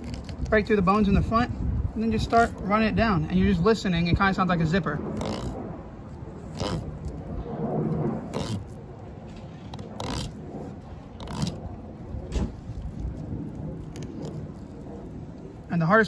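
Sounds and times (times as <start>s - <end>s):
knife rasping along fish bones: 5.2s - 5.6s, 6.5s - 7.0s, 8.3s - 8.7s, 9.7s - 10.4s, 11.2s - 11.6s.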